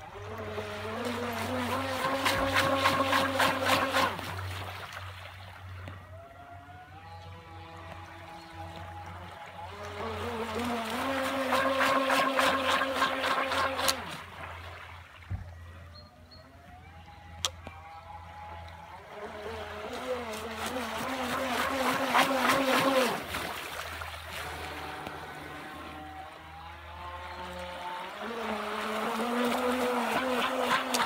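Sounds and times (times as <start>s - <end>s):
model boat motor whining: 0.0s - 31.0s.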